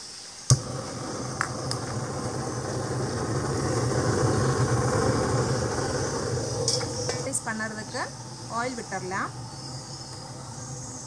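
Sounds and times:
gas burner rumbling: 0:00.4 - 0:11.0.

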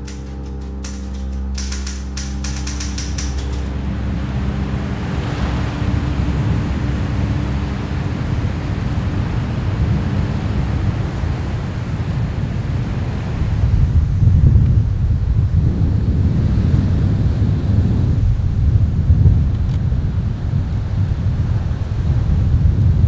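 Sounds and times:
sustained musical tone with ticks: 0:00.0 - 0:11.4
waves breaking on sandy beach: 0:00.0 - 0:14.4
wind rumbling on microphone: 0:00.0 - 0:23.0.

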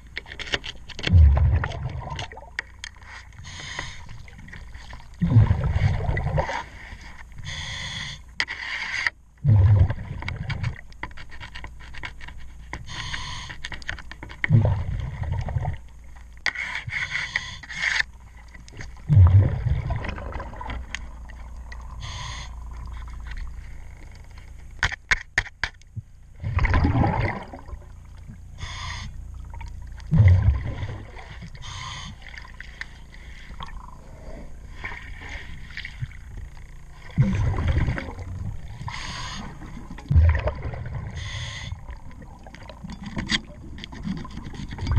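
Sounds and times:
regulator hissing inhale: 0:03.4 - 0:04.2, 0:06.8 - 0:08.3, 0:12.9 - 0:13.6, 0:21.9 - 0:22.8, 0:28.6 - 0:29.2, 0:31.6 - 0:35.6, 0:38.9 - 0:39.7, 0:41.1 - 0:42.0.

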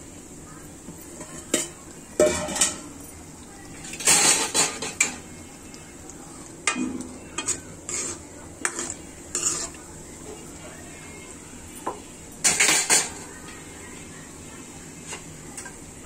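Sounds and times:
food sizzling in hot oil: 0:00.0 - 0:16.0
metal utensil scraping a pan: 0:03.9 - 0:05.2, 0:06.6 - 0:09.8.

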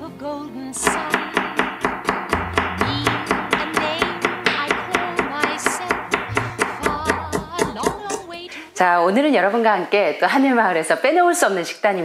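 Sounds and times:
acoustic guitar music with beat: 0:00.7 - 0:08.4.

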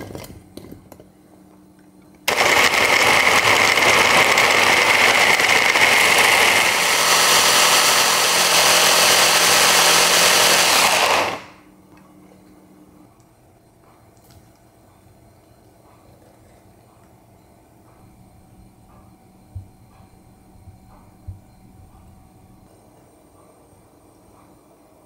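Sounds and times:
blender grinding: 0:02.3 - 0:11.6.

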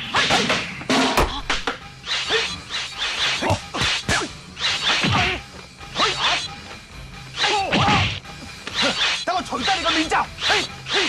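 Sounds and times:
whacking blows: 0:00.0 - 0:06.2
whooshing swings: 0:02.0 - 0:05.4.

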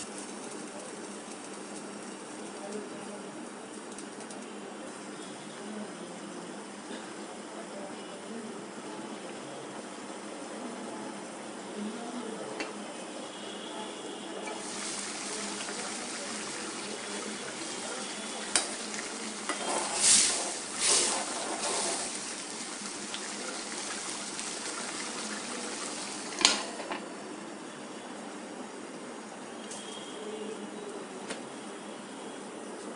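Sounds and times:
curry bubbling and sizzling: 0:00.0 - 0:03.0, 0:14.3 - 0:27.1
spoon stirring and scraping pan: 0:14.4 - 0:25.0
metal lid clanking: 0:26.4 - 0:27.0.

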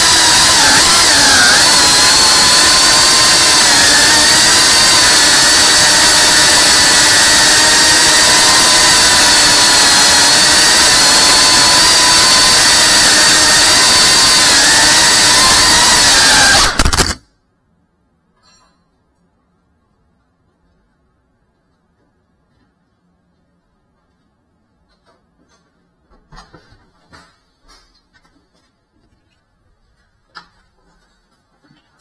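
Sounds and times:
drone motors whining: 0:00.0 - 0:17.2.

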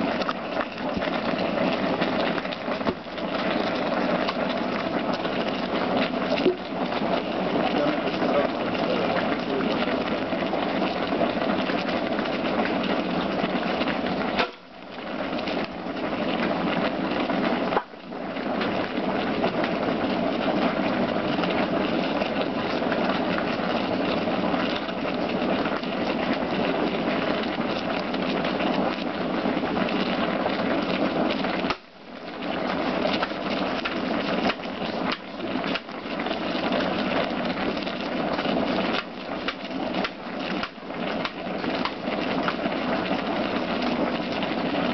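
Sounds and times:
pot boiling and bubbling: 0:00.0 - 0:44.9.

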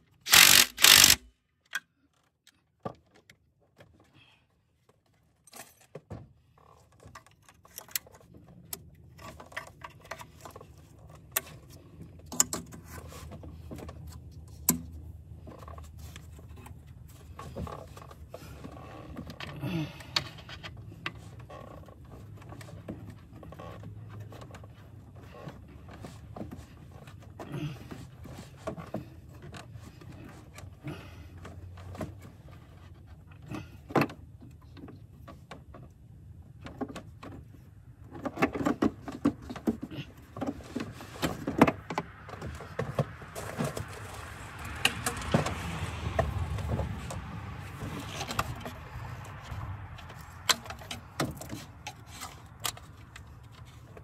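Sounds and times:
tools and parts clicking: 0:00.3 - 0:02.3
rustling and scraping: 0:04.8 - 0:19.6, 0:20.2 - 0:54.0.

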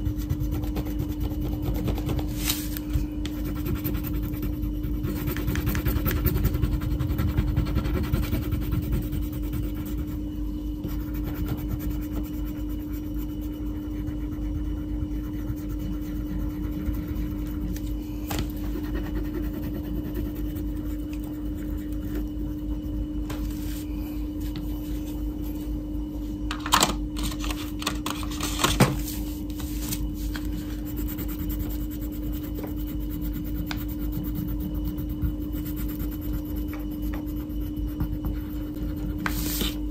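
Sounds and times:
crayon scratching on paper: 0:00.0 - 0:02.7, 0:03.3 - 0:10.2, 0:10.8 - 0:22.2, 0:30.2 - 0:39.8
steady low hum: 0:00.0 - 0:39.9.

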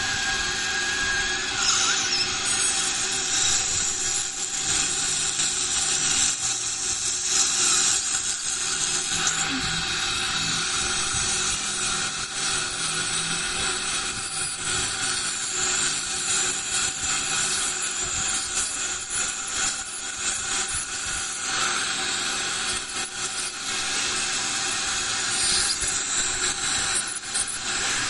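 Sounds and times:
dental scaler whine: 0:00.0 - 0:28.0.

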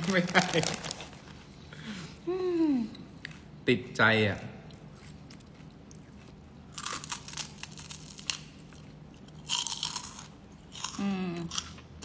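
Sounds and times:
crunchy snack chewing: 0:04.9 - 0:11.9.

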